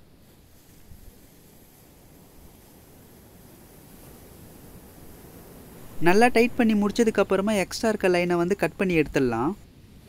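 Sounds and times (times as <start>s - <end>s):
soft hiss: 0.0s - 10.0s.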